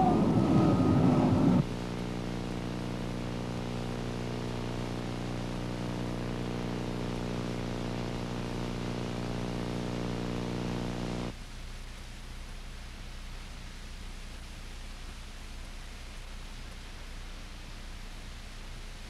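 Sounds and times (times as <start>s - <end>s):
electrical hum: 0.0s - 11.4s
tape hiss: 0.0s - 19.0s.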